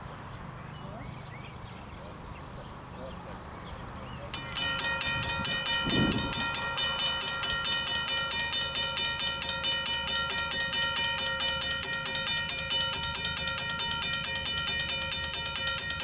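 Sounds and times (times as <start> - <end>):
level crossing bell ringing: 4.4 - 16.0.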